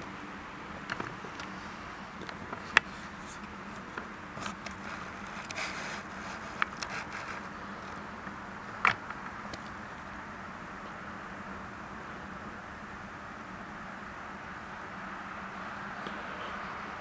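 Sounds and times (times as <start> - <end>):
handling scrapes and rustles: 0.8 - 9.7.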